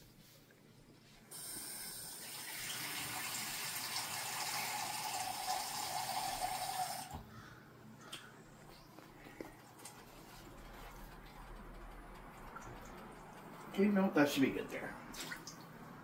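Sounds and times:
faucet running water into a cup: 1.3s - 7.1s.

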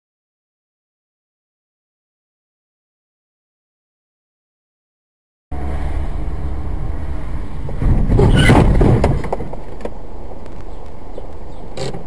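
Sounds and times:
harsh rush of noise: 5.5s - 10.4s
road and engine rumble: 5.5s - 12.0s.

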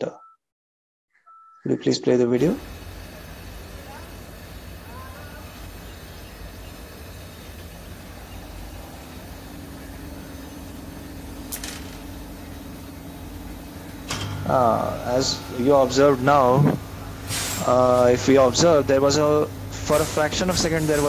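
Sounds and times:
low electrical hum: 2.2s - 21.0s
steady tone: 6.4s - 21.0s
sharp electrical crackle: 9.2s - 21.0s.

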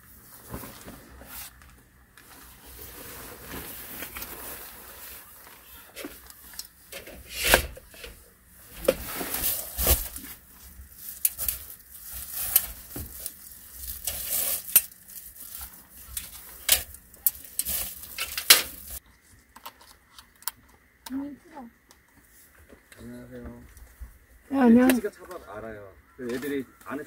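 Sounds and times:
rustling: 0.0s - 20.1s.

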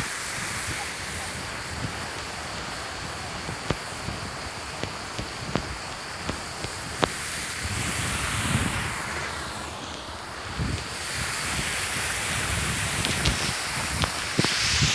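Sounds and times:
wind buffeting microphone: 0.0s - 14.9s
sharp ticks: 0.4s - 7.2s, 13.0s - 14.7s.

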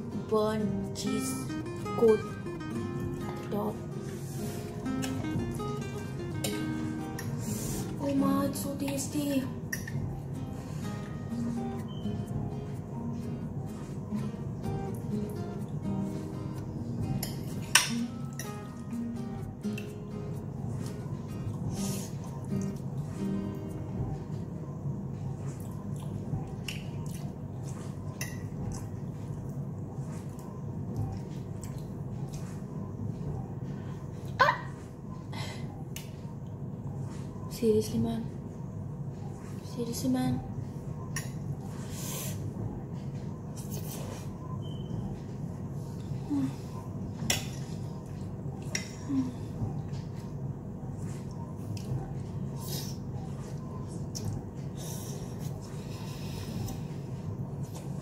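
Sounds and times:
low background hum: 0.0s - 58.0s
fork clinking against plate: 17.1s - 18.7s.

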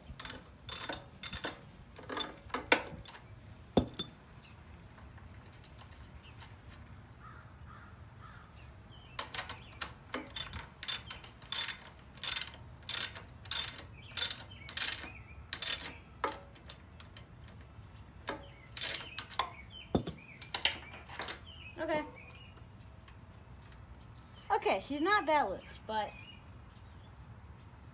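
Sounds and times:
ratchet wrench clicking: 0.0s - 2.4s, 9.2s - 17.6s, 18.2s - 19.6s.

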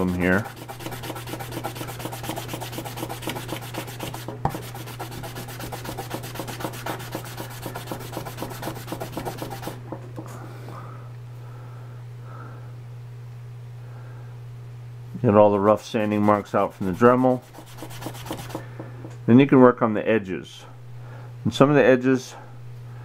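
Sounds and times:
wet sanding plastic by hand: 0.0s - 9.8s, 16.0s - 18.7s
steady low hum: 0.0s - 23.0s.

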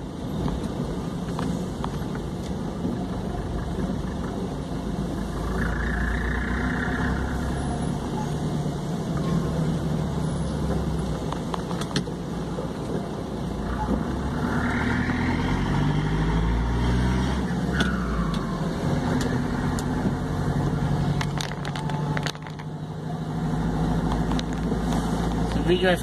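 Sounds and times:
road noise inside cab: 0.0s - 26.0s
vehicle engine revving: 13.6s - 25.6s.

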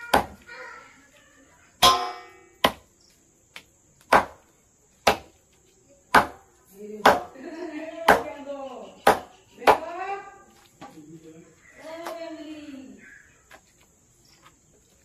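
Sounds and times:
knife chopping on wooden board: 4.1s - 4.4s, 9.0s - 9.8s.

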